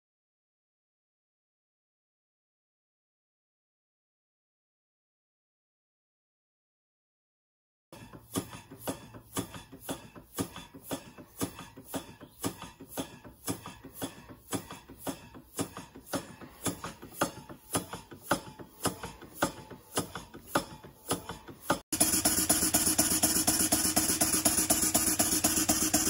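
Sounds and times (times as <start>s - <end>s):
model steam engine puffing: 8.0s - 26.0s.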